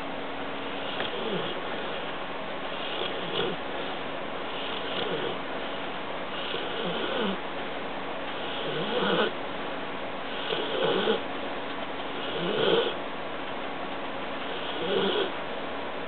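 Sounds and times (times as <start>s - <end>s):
dog snoring: 0.8s - 2.0s, 2.7s - 5.4s, 6.3s - 7.4s, 8.3s - 9.4s, 10.3s - 11.2s, 12.2s - 13.0s, 14.4s - 15.4s.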